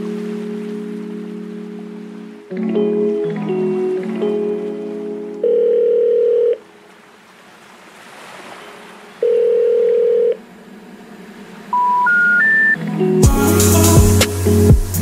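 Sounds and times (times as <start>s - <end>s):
long steady beeping tones: 9.2s - 10.4s, 11.7s - 13.9s
short beeps rising in pitch: 11.7s - 12.8s.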